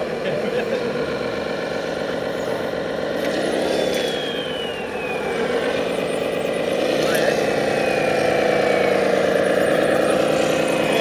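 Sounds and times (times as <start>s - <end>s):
toy truck motor drone: 0.0s - 11.0s
thin whine falling in pitch: 3.6s - 11.0s.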